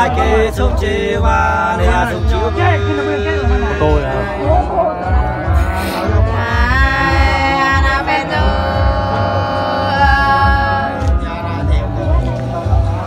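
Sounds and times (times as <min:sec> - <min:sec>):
low thumping beat: 0:00.0 - 0:13.0
women singing long wavering notes: 0:03.6 - 0:11.2.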